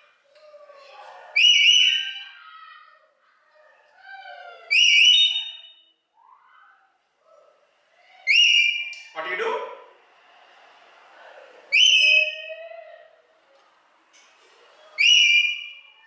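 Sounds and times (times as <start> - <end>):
parrot loud rising whistles: 1.4 - 2.4, 4.7 - 5.9, 11.7 - 12.7, 15.0 - 16.0.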